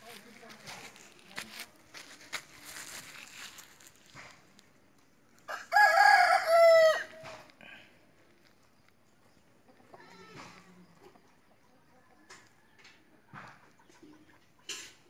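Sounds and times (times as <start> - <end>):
rooster crowing: 5.5 - 7.3
faint rooster call: 5.5 - 7.9.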